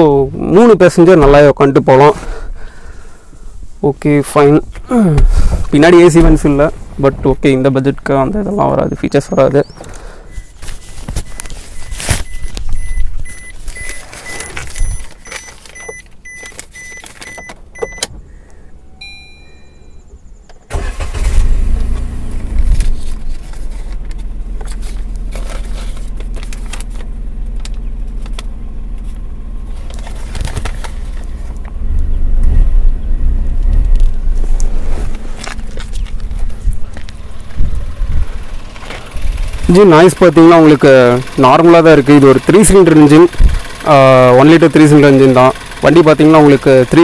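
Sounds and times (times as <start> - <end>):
car engine starting and idling: 0.0 - 47.0
short electronic beeps: 9.6 - 18.1, 18.8 - 20.2.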